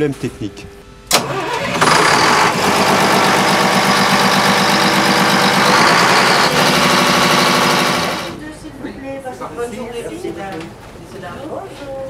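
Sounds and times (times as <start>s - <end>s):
generator engine idling: 1.1s - 8.4s.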